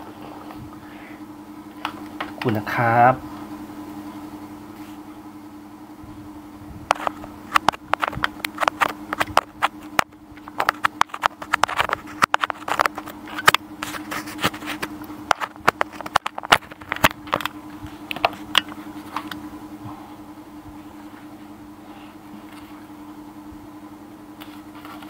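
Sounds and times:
low electrical hum: 0:00.0 - 0:25.0
rapid clicks and knocks: 0:06.9 - 0:19.4.

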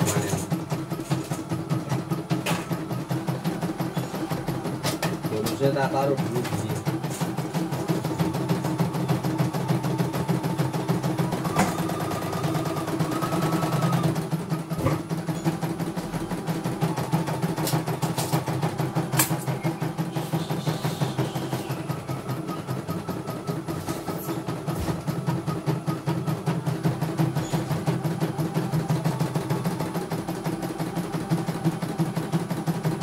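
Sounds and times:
embroidery machine needle chatter: 0:00.0 - 0:23.7
motor steady hum: 0:00.0 - 0:33.0.

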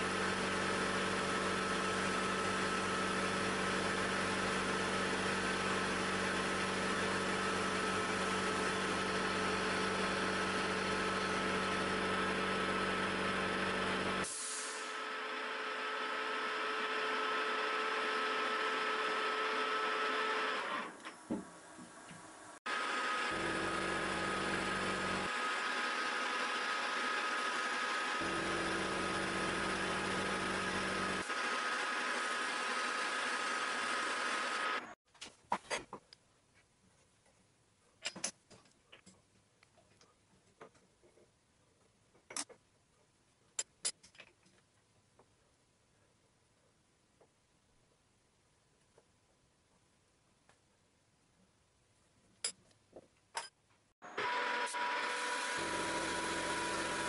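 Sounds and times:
milling machine whine: 0:54.1 - 0:57.0.

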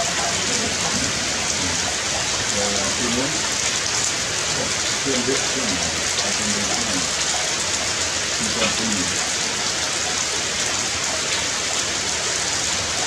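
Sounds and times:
faint voice-like sound: 0:00.0 - 0:03.4, 0:04.5 - 0:07.1, 0:08.4 - 0:09.2
rain falling on foliage: 0:00.0 - 0:13.0.

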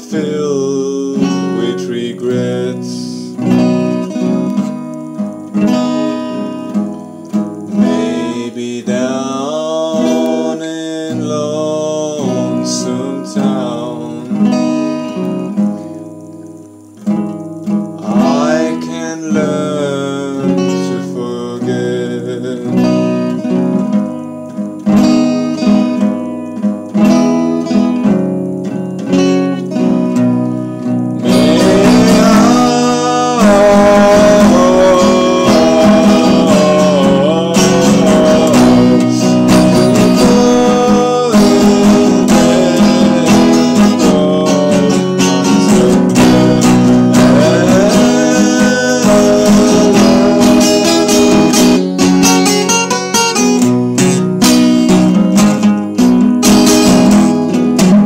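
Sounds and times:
man singing: 0:00.0 - 0:04.8, 0:07.6 - 0:15.6, 0:18.0 - 0:23.8, 0:31.2 - 0:53.8
acoustic guitar strumming: 0:00.0 - 0:58.0.

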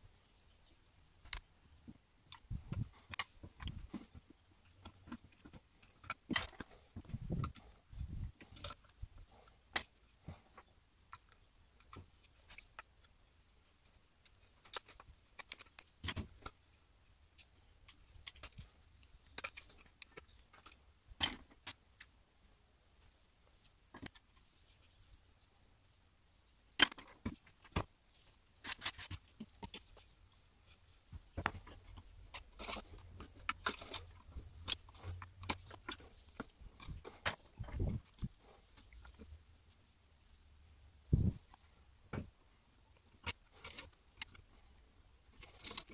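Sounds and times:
metal pick scraping and clicking: 0:13.8 - 0:16.6, 0:17.3 - 0:22.1, 0:31.4 - 0:39.4, 0:43.0 - 0:45.9.

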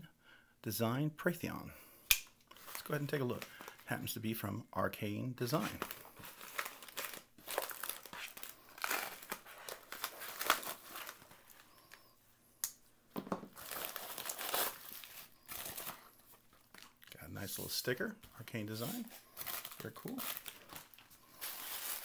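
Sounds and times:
plastic mailer crinkling: 0:05.5 - 0:12.1, 0:13.6 - 0:17.0, 0:18.5 - 0:22.0.

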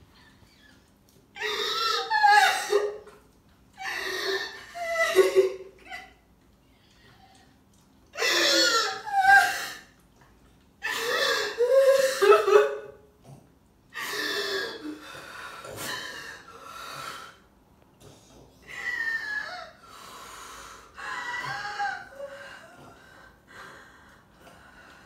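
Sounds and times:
woman sobbing: 0:03.8 - 0:06.2.

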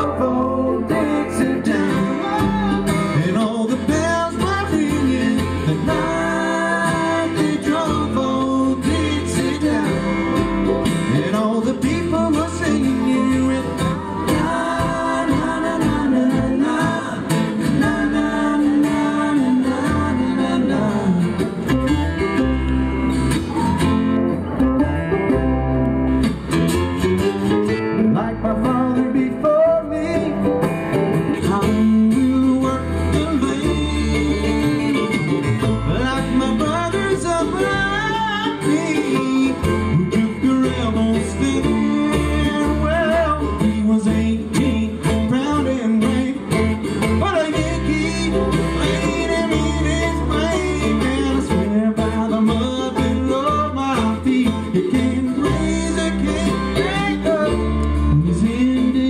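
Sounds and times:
man singing lead vocal: 0:00.0 - 0:22.0, 0:27.9 - 0:59.0
bluegrass band playing: 0:00.0 - 0:59.0.

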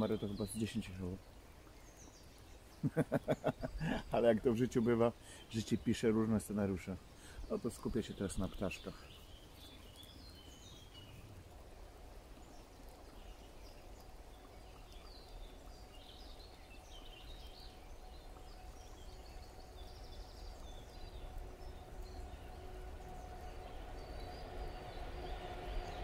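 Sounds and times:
songbirds chirping and singing: 0:00.0 - 0:11.3, 0:12.4 - 0:26.0
steady low rush: 0:20.2 - 0:26.0
distant train hum: 0:20.9 - 0:26.0.

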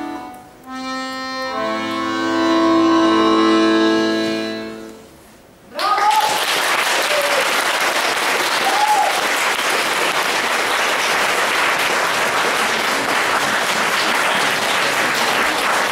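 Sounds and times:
audience applauding: 0:05.8 - 0:15.9.

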